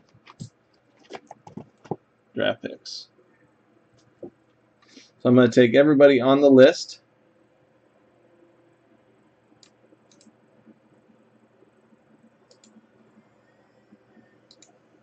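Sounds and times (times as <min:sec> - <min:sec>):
computer mouse clicks: 0:09.6 - 0:10.4, 0:12.5 - 0:12.9, 0:13.9 - 0:14.8.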